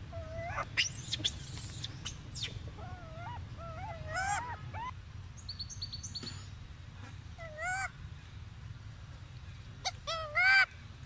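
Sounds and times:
baby monkey squealing: 0:00.1 - 0:04.9, 0:07.4 - 0:07.9, 0:09.8 - 0:10.7.

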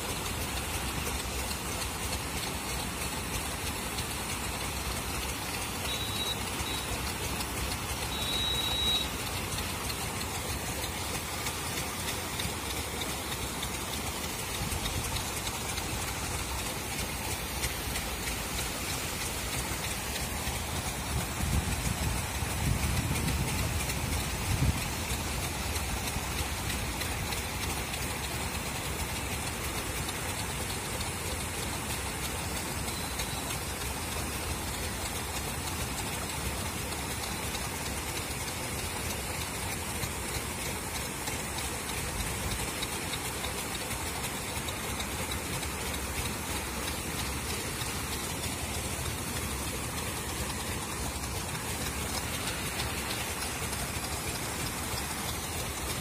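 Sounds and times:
aerators splashing water: 0:00.0 - 0:56.0.

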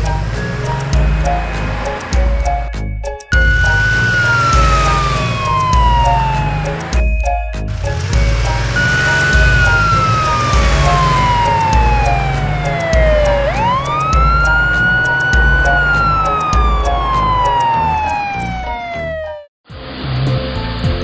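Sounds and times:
police siren wailing: 0:03.4 - 0:07.0, 0:08.7 - 0:19.5.

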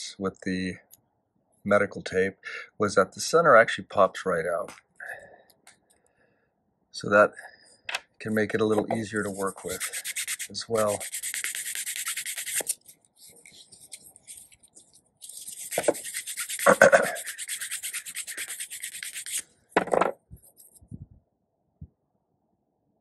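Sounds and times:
sanding stick rubbing plastic: 0:08.7 - 0:19.4.

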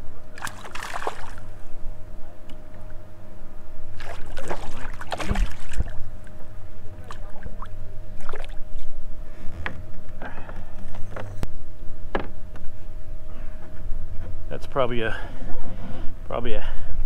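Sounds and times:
boat motor humming: 0:00.0 - 0:14.5
water splashes and knocks: 0:00.4 - 0:01.4, 0:04.0 - 0:06.0.

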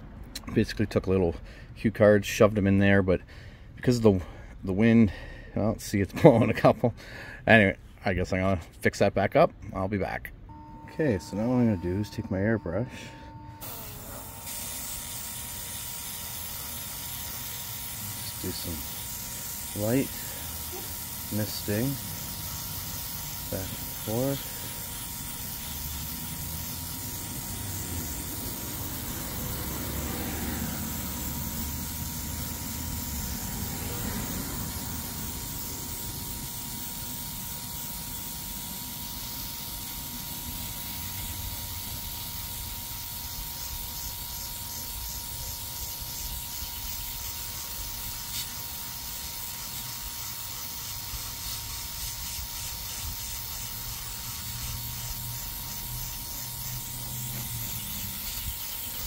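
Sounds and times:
thin steady whine: 0:10.5 - 0:59.0
airbrush spraying hiss: 0:13.6 - 0:59.0.

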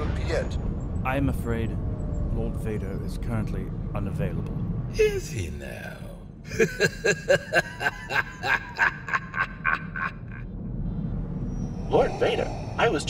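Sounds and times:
man laughing: 0:06.5 - 0:10.5.

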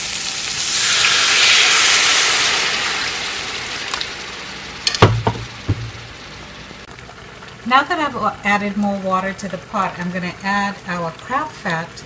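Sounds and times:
water sizzling in hot pan: 0:00.0 - 0:12.0
sharp knocks: 0:04.9 - 0:06.1.

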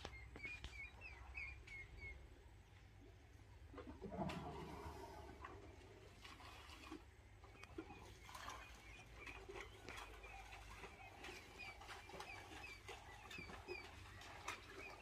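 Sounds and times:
faint birds chirping: 0:00.0 - 0:03.7, 0:07.3 - 0:15.0.

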